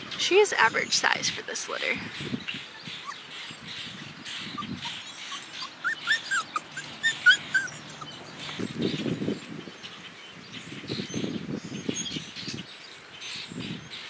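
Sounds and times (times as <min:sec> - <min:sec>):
puppies whimpering: 0:02.6 - 0:08.8.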